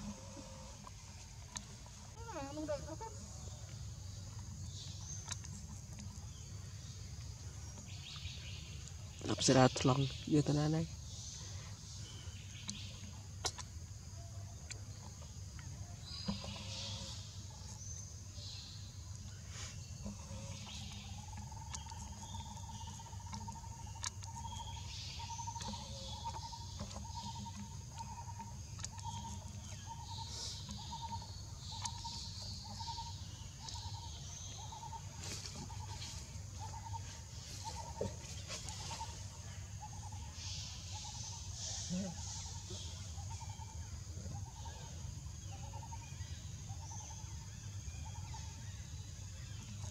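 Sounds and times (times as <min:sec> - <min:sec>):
high insect drone: 0:00.0 - 0:05.0.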